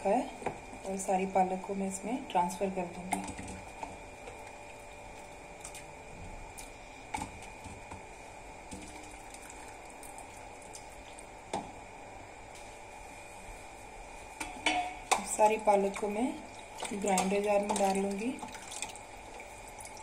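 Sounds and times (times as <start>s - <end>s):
water sloshing in a steel bowl: 14.5s - 20.0s.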